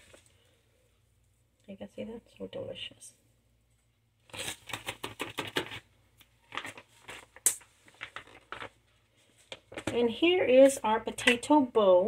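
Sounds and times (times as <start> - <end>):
kitchen items clicking and rustling: 9.5 - 11.5.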